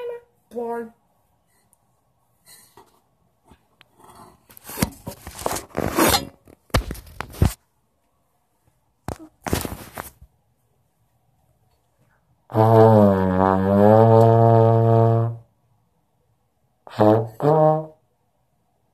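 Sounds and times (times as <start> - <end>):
rustling and scraping noise: 1.3 - 7.8, 8.6 - 10.4.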